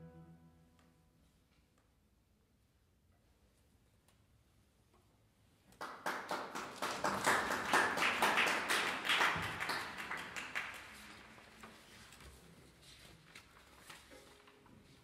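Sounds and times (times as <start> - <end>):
audience applauding: 5.8 - 11.7.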